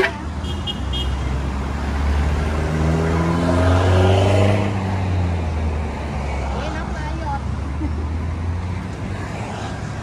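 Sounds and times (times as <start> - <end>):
vehicle engine accelerating: 1.4 - 6.6.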